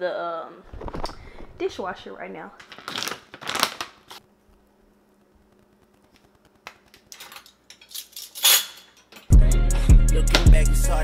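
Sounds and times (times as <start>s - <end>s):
plastic pouch crinkling: 2.6s - 4.2s
metal utensils clinking and rattling: 7.1s - 9.3s.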